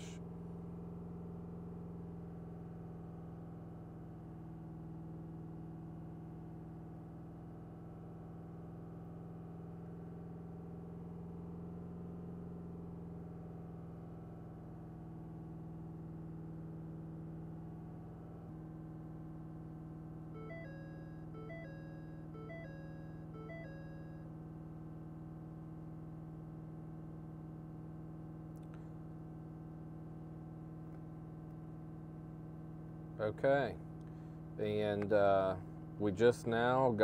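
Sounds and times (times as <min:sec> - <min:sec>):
diesel engine droning: 0:10.2 - 0:25.7.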